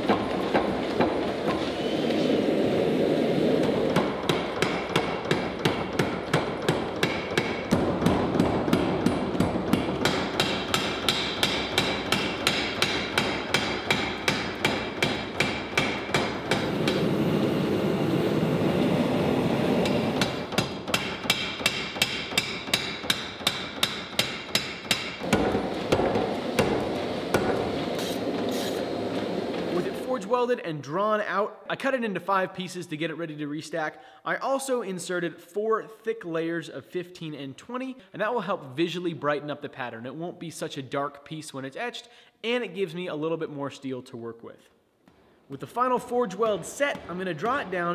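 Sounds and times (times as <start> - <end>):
power hammer striking hot steel: 3.6 - 29.6.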